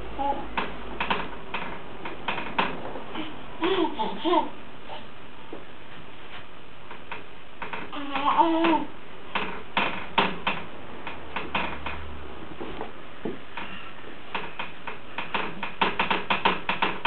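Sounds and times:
hands tapping wooden spindles: 0:00.5 - 0:02.9, 0:06.9 - 0:17.0.

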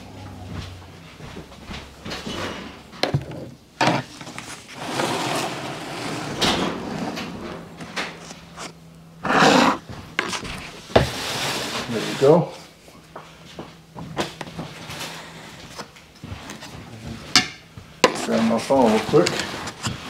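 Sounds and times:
pizza cutter scraping and crunching: 0:03.8 - 0:07.3, 0:08.1 - 0:12.5, 0:18.1 - 0:20.0.

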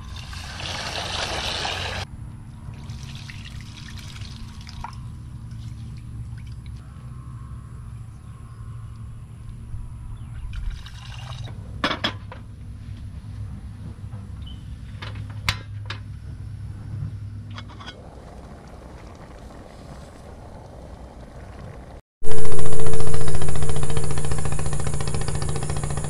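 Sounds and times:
tap water running into pot: 0:00.0 - 0:02.0
loud steady sound: 0:22.2 - 0:26.0.

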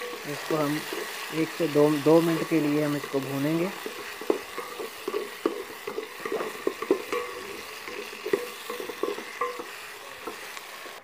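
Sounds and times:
food sizzling in a pot: 0:00.0 - 0:11.0
wooden spoon knocking against pot: 0:02.3 - 0:10.5.

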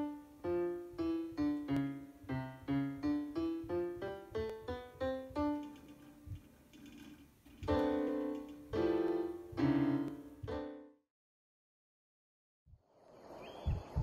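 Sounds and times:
electronic piano notes and chords: 0:00.0 - 0:11.0.

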